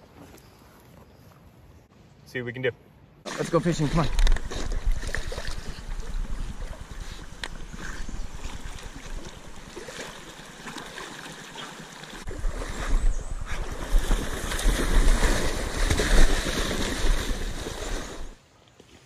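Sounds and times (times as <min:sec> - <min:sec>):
water sloshing and splashing: 0:03.3 - 0:18.4
wind rumble on microphone: 0:04.1 - 0:08.7, 0:12.3 - 0:15.3.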